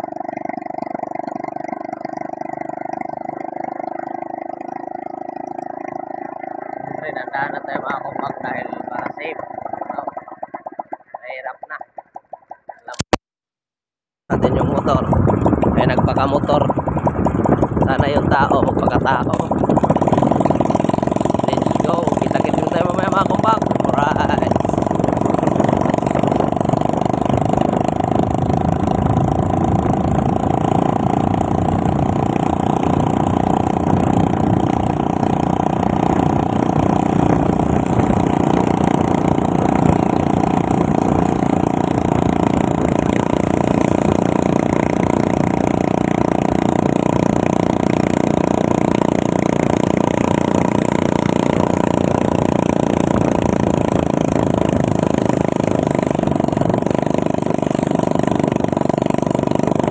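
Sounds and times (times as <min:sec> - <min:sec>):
motorcycle engine running: 0:00.0 - 0:13.2, 0:14.3 - 0:59.9
wind and road noise: 0:14.3 - 0:59.9.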